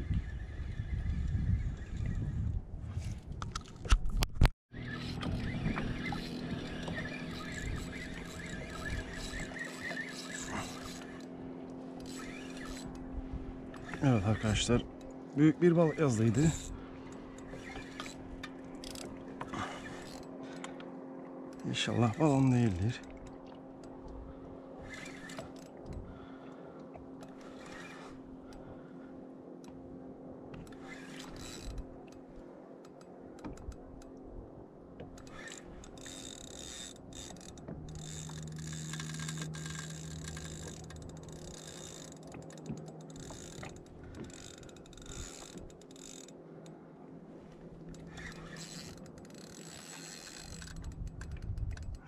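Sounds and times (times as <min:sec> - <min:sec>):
fishing reel clicking and whirring: 0:04.8 - 0:13.1, 0:13.7 - 0:16.8, 0:17.4 - 0:20.8, 0:21.5 - 0:23.0, 0:24.8 - 0:26.3, 0:27.2 - 0:28.7, 0:30.6 - 0:32.2, 0:35.1 - 0:46.4, 0:47.9 - 0:52.0.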